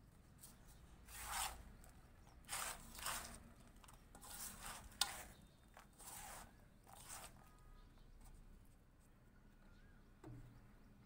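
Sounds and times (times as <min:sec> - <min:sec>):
hands raking through gritty soil: 0:00.5 - 0:01.6, 0:02.4 - 0:07.6.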